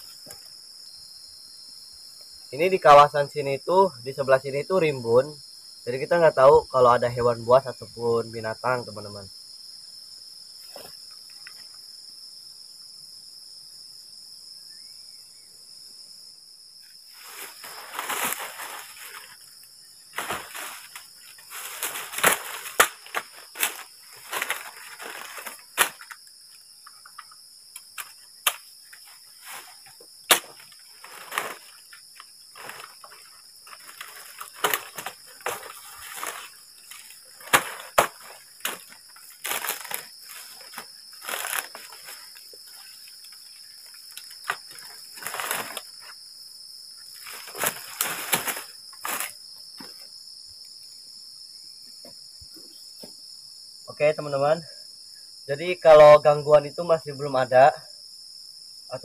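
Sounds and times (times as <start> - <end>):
night insects chirring: 0.0 - 59.0
rustling in dry grass: 17.1 - 26.6, 28.0 - 46.2, 47.1 - 49.4
sticks cracking and clattering: 20.2 - 26.2, 27.1 - 28.6, 30.3 - 32.0, 32.6 - 42.2, 47.3 - 49.3.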